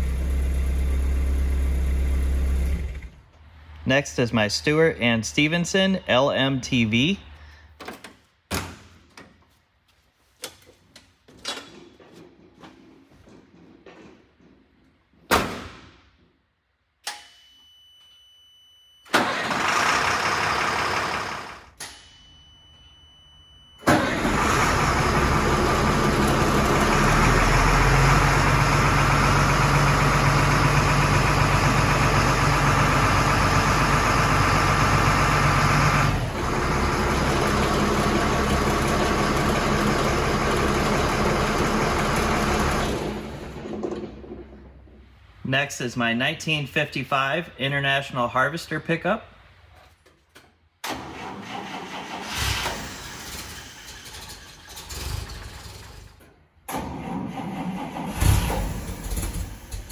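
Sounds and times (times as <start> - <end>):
diesel engine idling: 0.0 - 3.2, 19.2 - 21.7, 23.9 - 43.6
high warning tone: 21.8 - 23.9.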